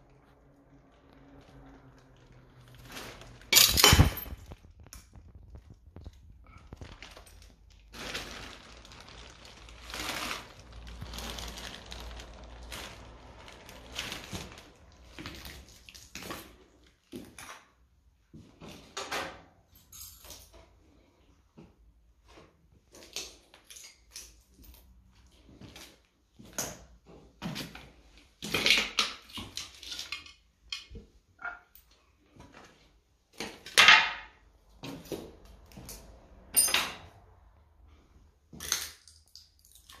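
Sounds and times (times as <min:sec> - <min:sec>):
hard material clattering: 0:02.8 - 0:06.8.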